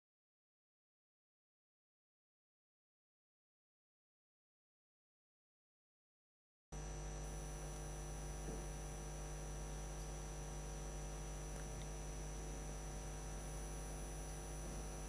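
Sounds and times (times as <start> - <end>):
electrical mains hum: 6.8 - 15.0.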